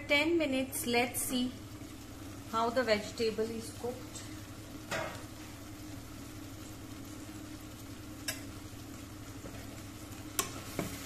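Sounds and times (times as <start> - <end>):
food sizzling in a pan: 0.0 - 11.0
steady low hum: 0.0 - 11.0
spoon clicking against pan: 8.2 - 8.5, 10.4 - 10.6.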